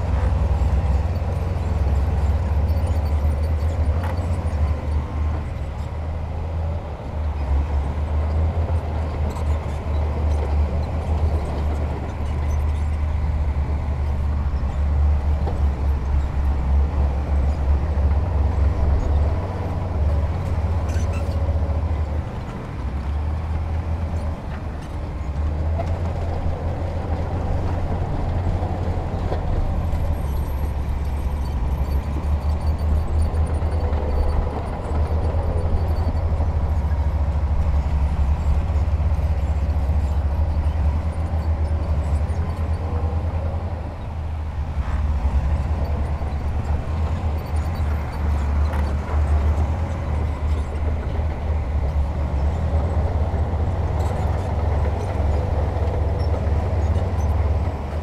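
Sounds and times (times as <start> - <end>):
diesel machinery engine drone: 0.0 - 58.0.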